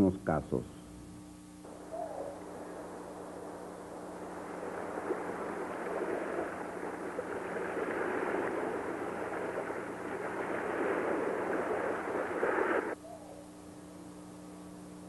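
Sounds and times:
steady rushing noise: 1.7s - 13.0s.

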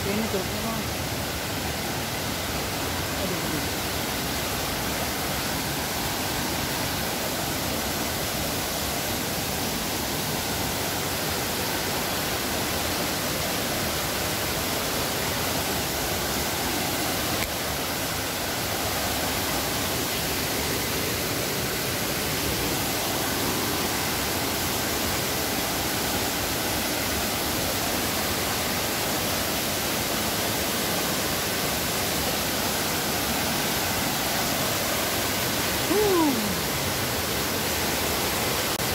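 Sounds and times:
stream running over rocks: 0.0s - 38.9s
waterfall rushing into pool: 0.0s - 38.9s.

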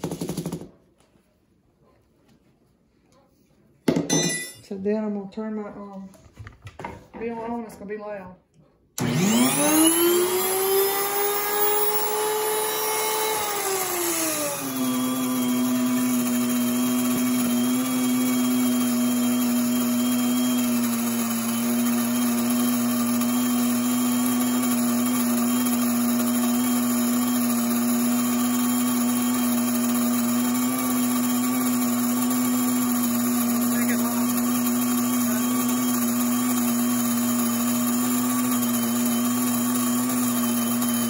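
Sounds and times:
grain mill motor whining: 9.0s - 41.0s.

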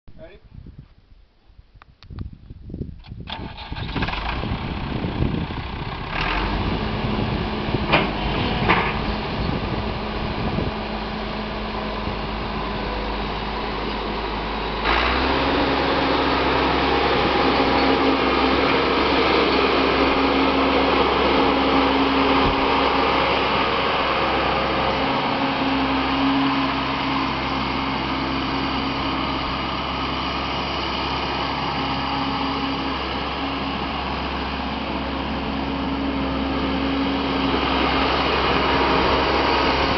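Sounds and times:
diesel tractor engine: 3.0s - 39.9s
engine knocks: 3.2s - 10.6s.

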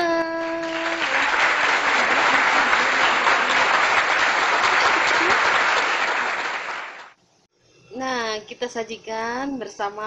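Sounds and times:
crowd applauding: 0.4s - 7.2s.

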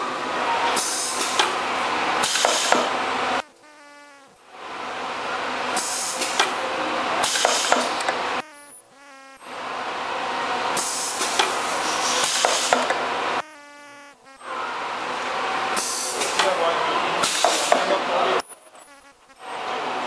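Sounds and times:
machine hissing: 0.6s - 3.4s, 5.4s - 9.0s, 9.7s - 18.2s
buzzing hum: 1.4s - 4.6s, 7.4s - 10.1s, 12.2s - 14.9s, 18.4s - 19.6s.

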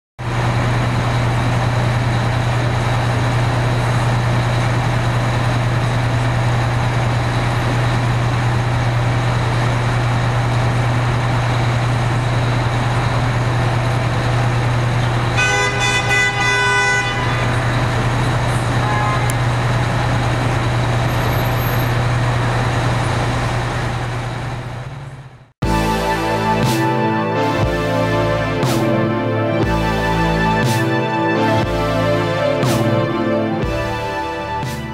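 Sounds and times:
diesel engine idling: 0.2s - 34.9s
street traffic: 0.2s - 34.9s
vehicle horn honking: 15.2s - 19.5s.

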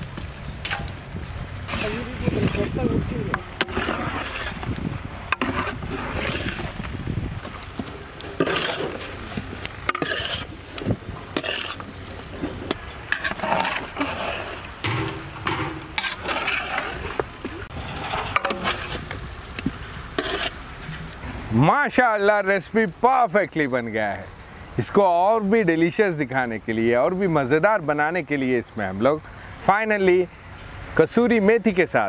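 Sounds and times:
ladle scraping and stirring paste: 1.7s - 21.5s.

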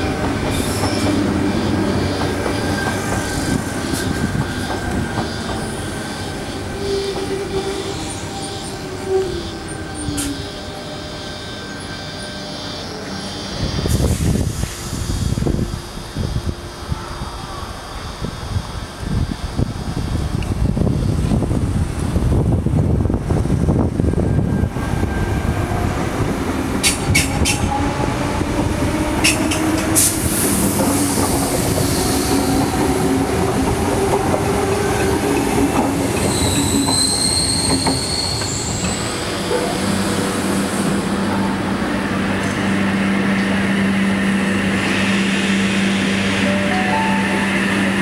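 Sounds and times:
steady low train hum: 0.0s - 48.0s
high wheel squeal: 0.4s - 15.4s, 36.2s - 40.1s.

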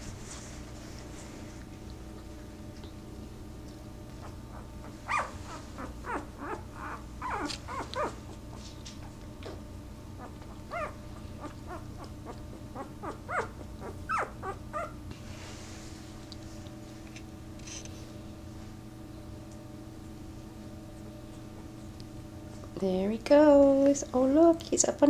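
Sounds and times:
puppies whimpering and squeaking: 4.2s - 9.6s, 10.2s - 15.0s.

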